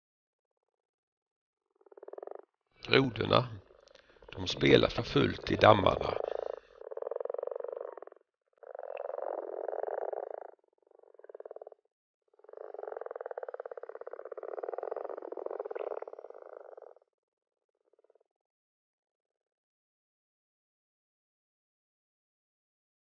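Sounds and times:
frogs croaking: 0:01.7 - 0:17.1.

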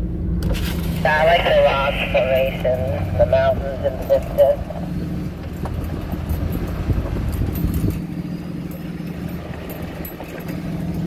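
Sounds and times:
diesel engine drone: 0:00.0 - 0:11.0
road rumble: 0:00.0 - 0:11.0
rattling clicks: 0:05.4 - 0:11.0.

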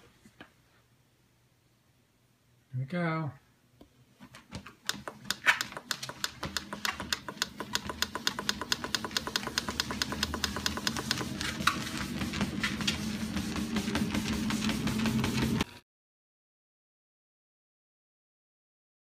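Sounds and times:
treadmill motor hum: 0:04.5 - 0:15.8.

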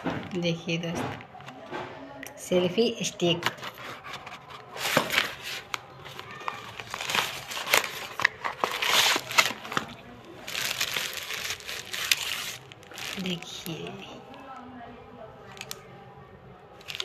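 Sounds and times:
plastic packaging crinkling: 0:03.4 - 0:14.6, 0:15.4 - 0:15.9, 0:16.8 - 0:17.0.

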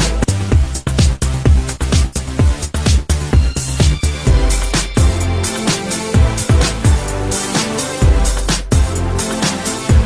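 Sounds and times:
electronic dance music: 0:00.0 - 0:10.0.

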